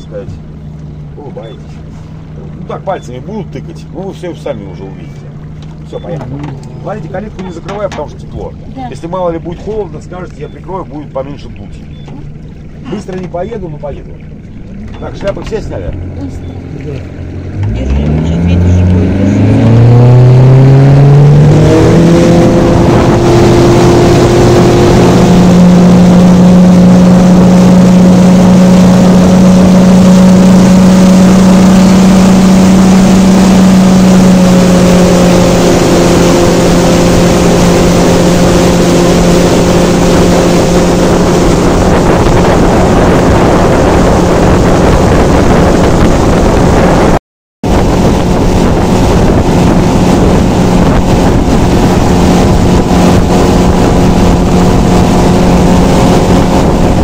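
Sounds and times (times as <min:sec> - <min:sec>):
motorboat engine: 0:00.0 - 0:57.0
water rushing past hull: 0:00.0 - 0:57.0
wind on microphone: 0:15.9 - 0:57.0.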